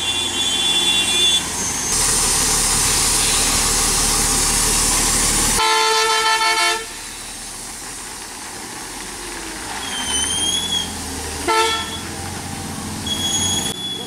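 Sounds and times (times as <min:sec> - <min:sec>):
heavy lorry passing: 0:00.0 - 0:14.0
lorry horn: 0:11.5 - 0:12.0.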